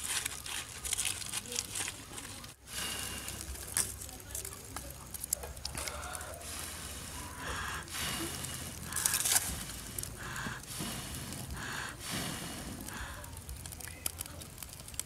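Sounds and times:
wood fire crackling: 0.0 - 15.0
breathy puffs through a tube: 2.6 - 3.9, 5.8 - 13.7.

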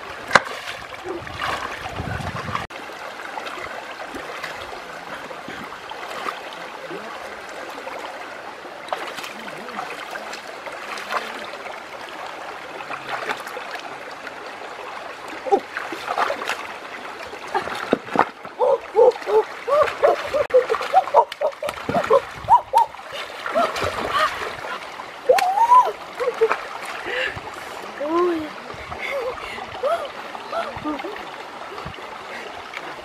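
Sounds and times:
splashing in water: 0.0 - 2.8, 3.4 - 8.2, 8.8 - 11.8, 12.8 - 13.9, 15.3 - 27.4
stream gurgling over rocks: 0.0 - 33.0.

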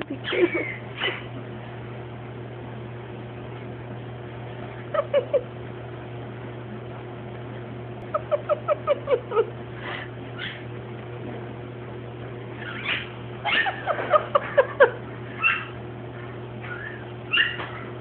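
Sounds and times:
puppy whimpering yips: 10.4 - 10.6, 12.6 - 13.8, 15.4 - 15.8, 16.6 - 17.8.

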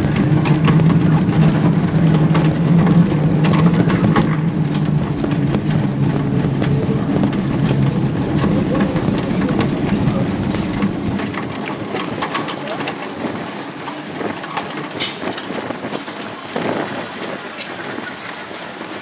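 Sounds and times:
vehicle engine idling: 0.0 - 13.3
street noise: 0.0 - 19.0.

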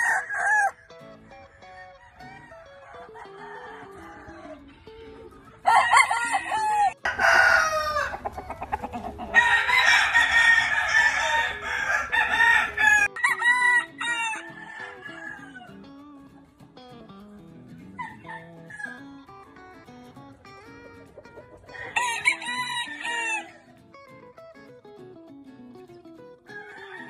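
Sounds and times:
roosters crowing: 0.0 - 15.9, 18.0 - 19.0, 21.6 - 23.7, 26.5 - 27.0.

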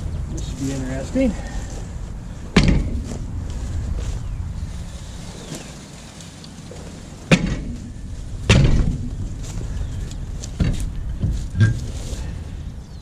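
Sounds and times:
boot kicking tyre thump: 2.5 - 3.6, 7.2 - 9.7, 10.4 - 12.1.

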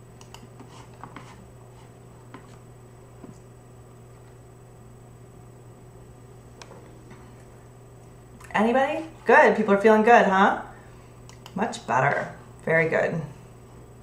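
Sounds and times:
low electrical hum: 0.0 - 14.0
faint sharp clicks and taps: 11.2 - 11.6.

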